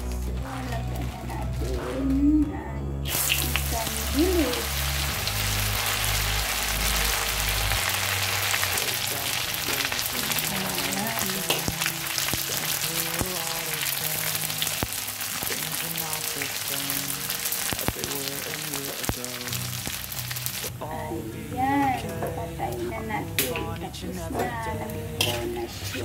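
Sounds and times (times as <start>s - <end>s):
melodic background tune: 0.0s - 26.0s
fish sizzling in hot oil: 3.1s - 20.7s.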